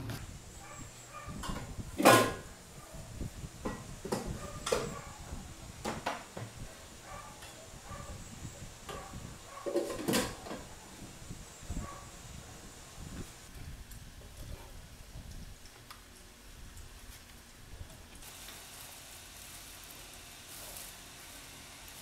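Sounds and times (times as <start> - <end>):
objects knocking and clattering: 1.4 - 2.5, 3.6 - 5.0, 8.9 - 10.7.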